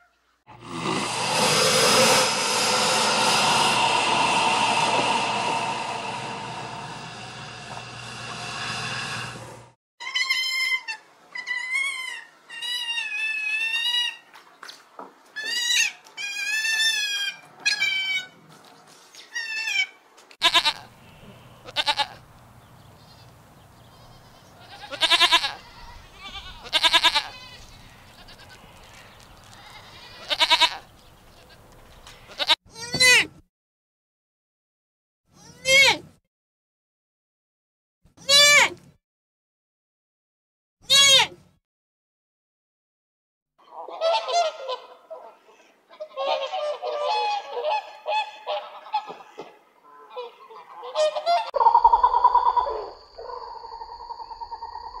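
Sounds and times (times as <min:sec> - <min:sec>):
dense steady drone: 0:00.6 - 0:09.8
animals bleating: 0:20.4 - 0:20.9, 0:21.6 - 0:22.2, 0:23.9 - 0:30.8.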